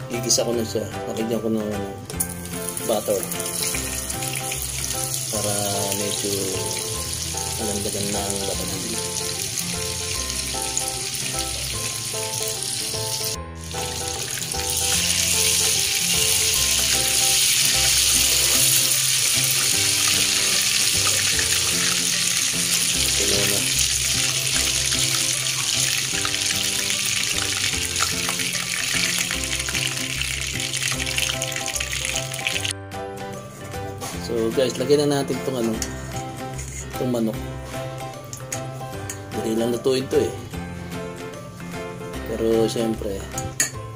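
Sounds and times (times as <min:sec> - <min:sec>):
background music: 0:00.0 - 0:43.9
butter sizzling in a pan: 0:02.3 - 0:32.7.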